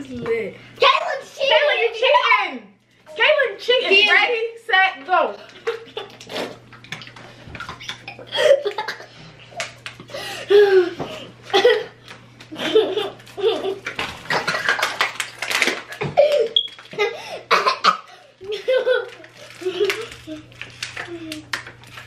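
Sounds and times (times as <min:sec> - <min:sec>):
people gulping water: 0:05.5 - 0:09.2, 0:13.8 - 0:17.6.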